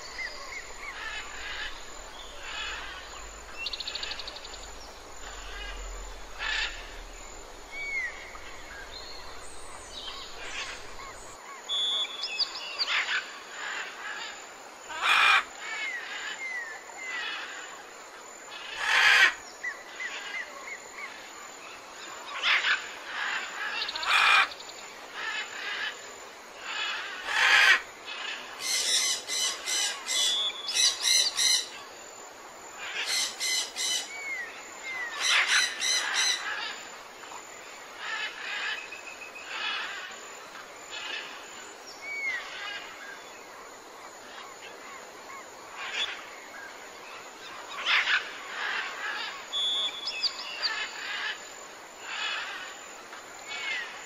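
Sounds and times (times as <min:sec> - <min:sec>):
birds chirping and calling: 0:00.0 - 0:13.3, 0:26.7 - 0:31.8, 0:32.8 - 0:36.8, 0:47.4 - 0:51.4.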